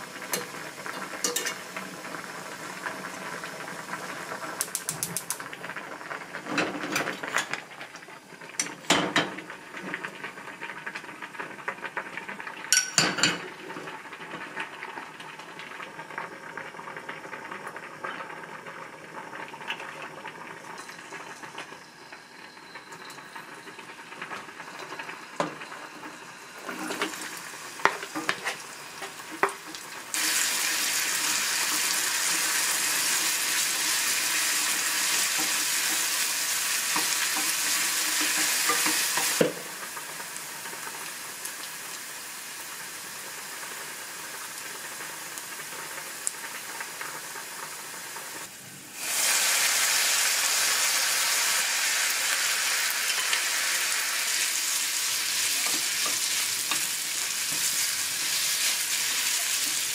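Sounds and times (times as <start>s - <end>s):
food sizzling in a hot pan: 0.0s - 59.9s
utensils clinking against dishes: 1.2s - 1.6s, 12.7s - 13.5s.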